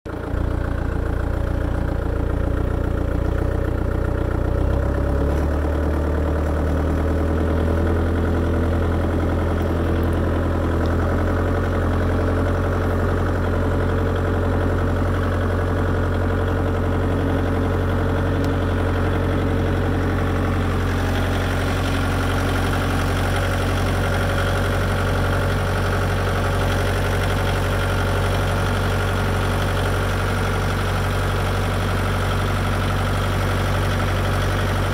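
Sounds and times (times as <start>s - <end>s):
tractor engine running: 0.1s - 34.9s.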